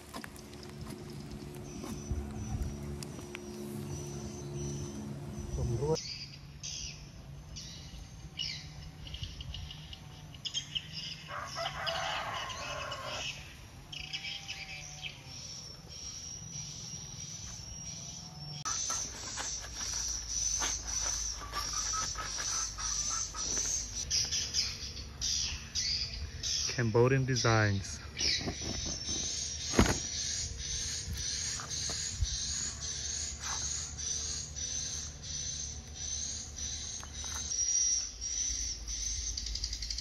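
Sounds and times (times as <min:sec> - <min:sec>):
birds chirping: 0:00.0 - 0:40.0
steady high buzz: 0:00.0 - 0:40.0
roosters crowing: 0:09.8 - 0:16.6, 0:17.7 - 0:26.6, 0:28.2 - 0:35.4.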